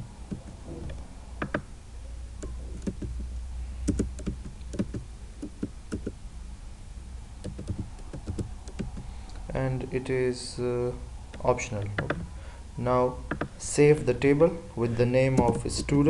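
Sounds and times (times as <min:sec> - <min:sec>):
low steady hum: 0:00.0 - 0:16.0
computer keyboard typing: 0:01.4 - 0:01.7, 0:02.4 - 0:03.2, 0:03.9 - 0:06.1, 0:07.4 - 0:09.1.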